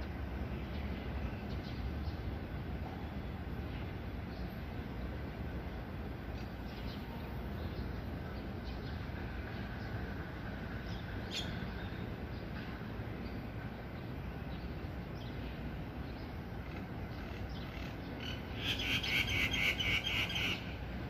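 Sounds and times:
myna bird calling: 11.2s - 12.0s, 16.6s - 20.8s.

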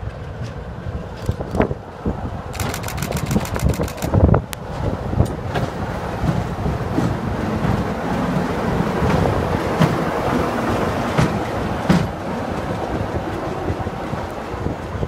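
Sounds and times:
diesel locomotive engine running: 0.0s - 15.0s
sharp clicks: 2.5s - 4.2s.

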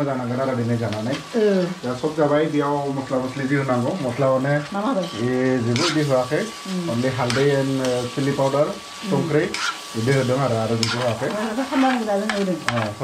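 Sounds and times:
food sizzling: 0.0s - 13.0s
metal spatula scraping a pan: 3.4s - 13.0s.

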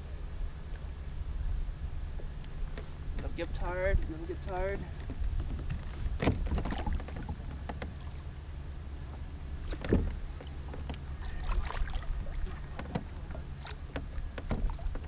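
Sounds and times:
steady low rumble: 0.0s - 15.0s
water splashing: 6.1s - 8.4s, 9.6s - 15.0s.

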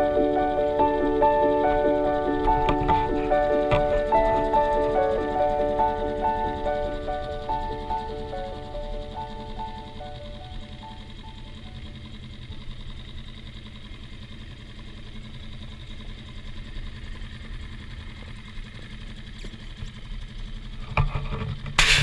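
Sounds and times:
outboard motor idling: 0.0s - 22.0s
knocks and rustles: 20.8s - 22.0s.

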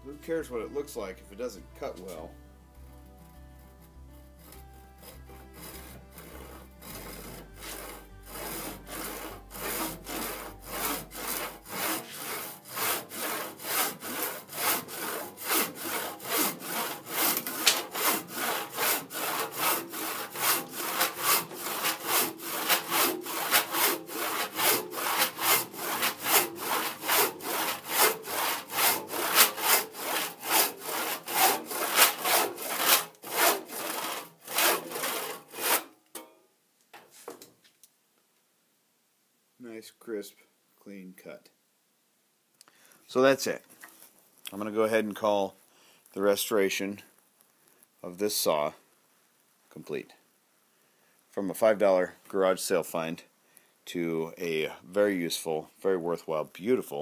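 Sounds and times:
handsaw sawing wood: 3.6s - 35.9s.

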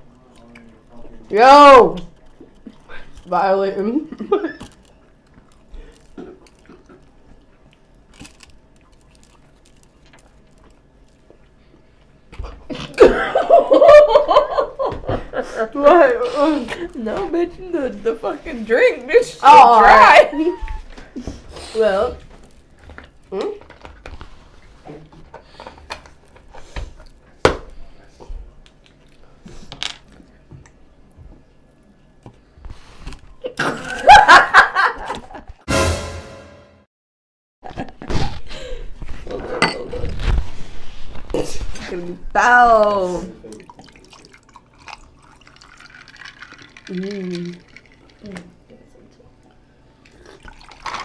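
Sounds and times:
person chewing crunchy food: 4.7s - 11.6s
woman laughing loudly: 12.9s - 15.7s, 33.6s - 35.5s.

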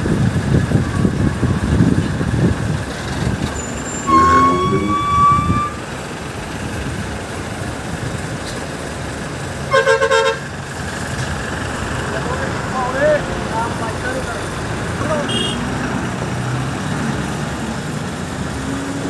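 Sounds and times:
long vehicle horn blast: 3.9s - 5.9s, 9.7s - 10.4s, 15.3s - 15.6s
short pulsing horn toot: 3.9s - 5.9s.

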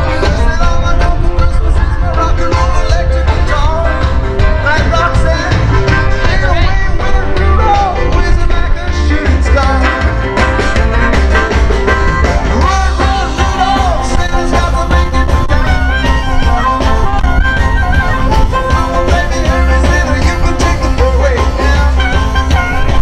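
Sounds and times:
bass guitar: 0.0s - 23.0s
drums: 0.0s - 23.0s
electric guitars: 0.0s - 23.0s
person singing: 12.4s - 23.0s.

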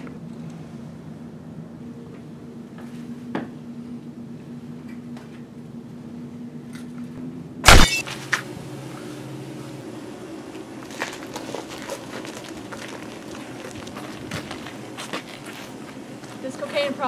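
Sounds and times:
steady low hum: 0.0s - 17.0s
loud sharp bang: 7.7s - 8.0s.

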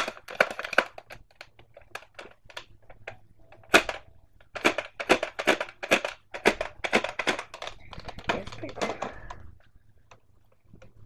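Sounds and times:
toy blaster clicks and rattles: 0.0s - 9.5s
plastic toy knock: 3.6s - 9.3s.

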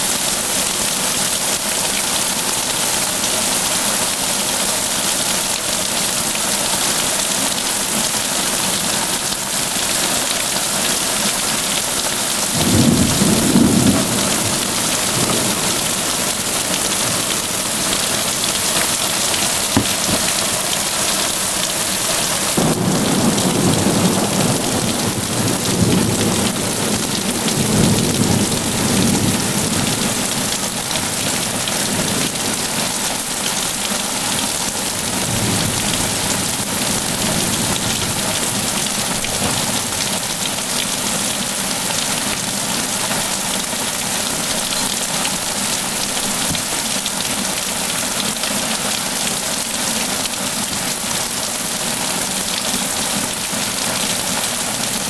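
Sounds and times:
heavy rain pouring: 0.0s - 55.0s
thunder rumbling: 12.5s - 20.8s, 22.5s - 30.3s.

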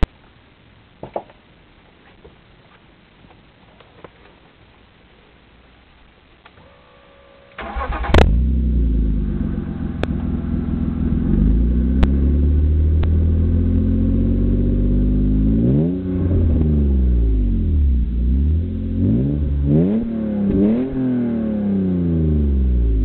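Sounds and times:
car engine idling: 7.0s - 20.8s
engine throttle blips: 7.0s - 23.0s.

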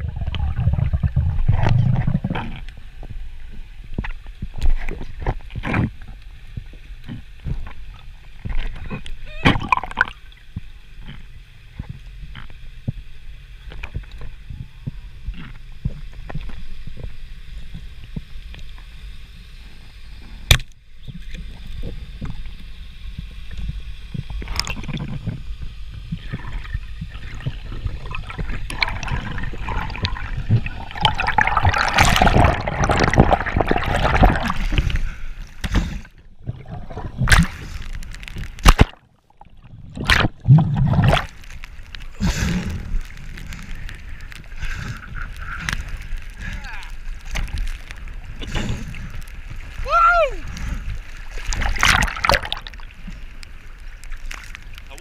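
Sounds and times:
gurgling rush of water: 0.0s - 13.0s, 21.0s - 55.0s
low underwater rumble: 0.0s - 18.5s, 19.7s - 55.0s.

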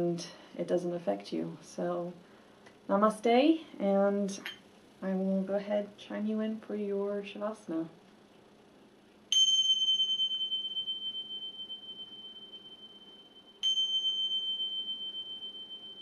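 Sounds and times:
small cymbals ringing: 9.3s - 16.0s.

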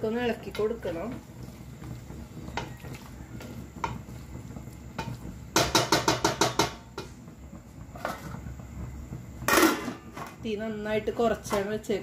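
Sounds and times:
wooden spoon scraping a pot: 0.0s - 7.2s.

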